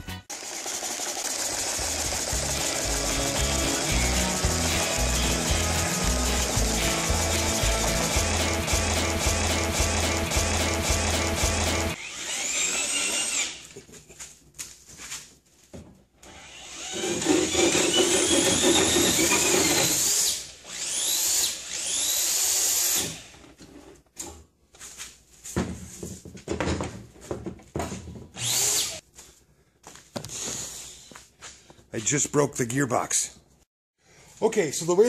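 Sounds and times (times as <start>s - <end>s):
drill whine spinning up: 0.4s - 13.6s, 16.2s - 23.2s, 28.4s - 29.0s.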